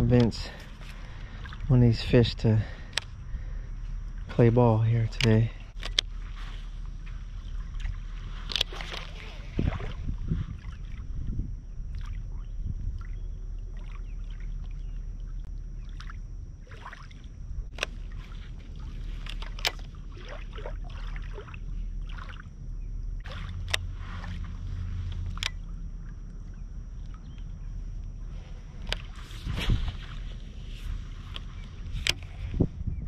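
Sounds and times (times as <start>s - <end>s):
wind rumbling on microphone: 0.0s - 33.0s
water lapping: 0.4s - 4.2s, 5.1s - 32.5s
sharp clicks: 2.9s - 3.2s, 5.2s - 6.1s, 31.3s - 32.3s.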